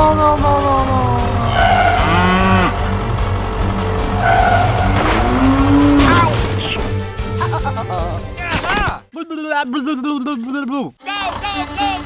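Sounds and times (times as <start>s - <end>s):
background music: 0.0s - 9.1s
cow mooing: 1.2s - 6.4s.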